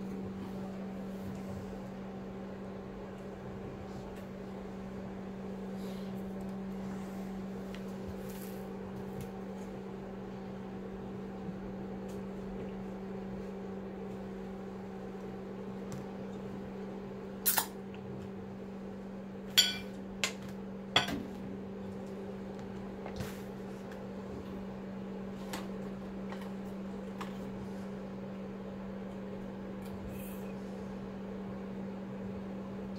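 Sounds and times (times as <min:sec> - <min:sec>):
low electrical hum: 0:00.0 - 0:32.9
dishes and utensils clinking: 0:19.6 - 0:19.9, 0:21.0 - 0:21.2.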